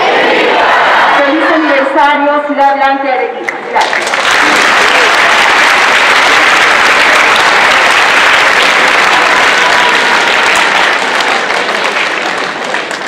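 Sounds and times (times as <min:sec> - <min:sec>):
crowd applauding: 0:03.5 - 0:13.0.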